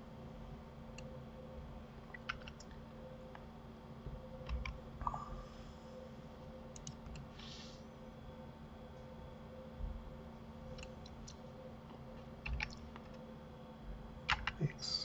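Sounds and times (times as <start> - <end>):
faint steady hum: 0.0 - 15.0
computer mouse and keyboard clicks: 2.1 - 2.8, 4.4 - 4.8, 6.7 - 7.3, 10.7 - 11.4, 12.4 - 13.2, 14.3 - 14.6.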